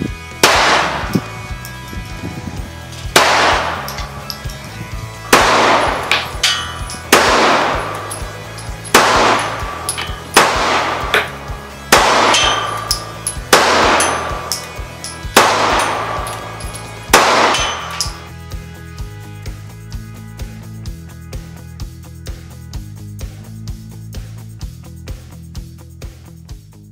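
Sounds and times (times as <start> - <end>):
background music: 0.0 - 26.9
pistol shots echoing: 0.4 - 1.2, 3.1 - 4.6, 5.3 - 18.3.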